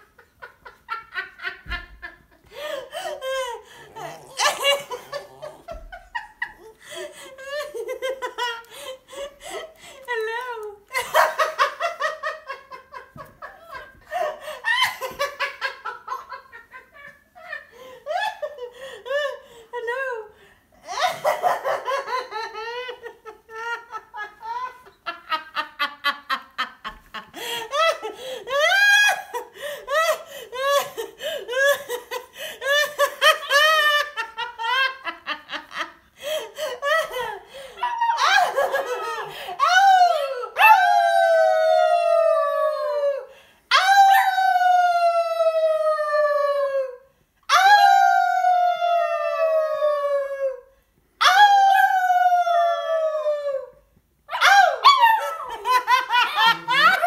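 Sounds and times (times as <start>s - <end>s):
woman laughing hard: 0.0s - 41.2s, 54.4s - 57.0s.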